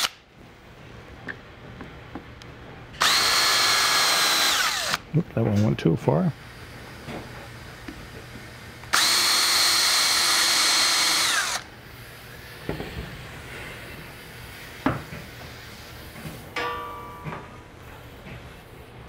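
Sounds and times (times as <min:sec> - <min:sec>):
cordless drill whine: 0:03.0 - 0:05.0, 0:08.9 - 0:11.7.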